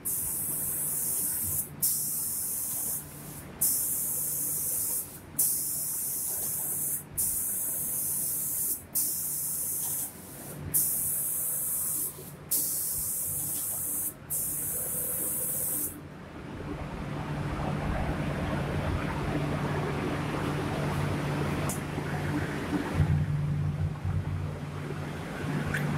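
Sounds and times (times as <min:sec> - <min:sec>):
spray gun hissing: 0:00.0 - 0:16.0.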